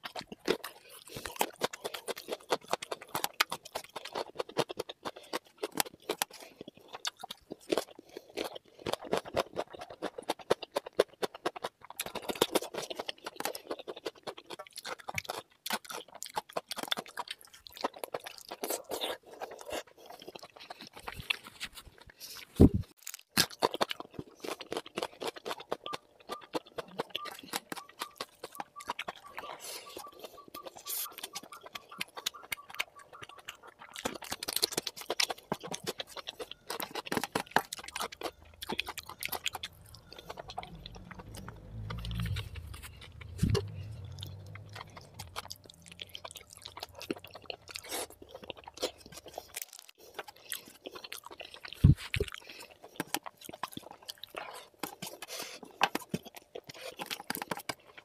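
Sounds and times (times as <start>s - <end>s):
crunchy bites: 0.0s - 58.0s
person chewing: 0.0s - 58.0s
mouth clicks: 25.5s - 34.8s.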